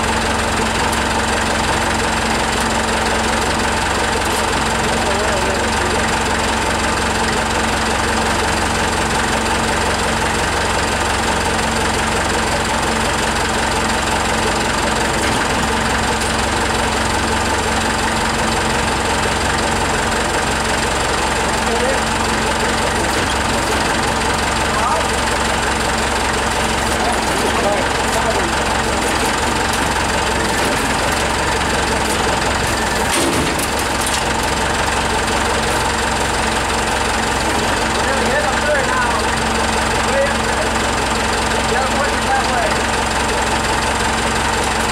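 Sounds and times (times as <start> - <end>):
forklift engine idling: 0.0 - 44.9.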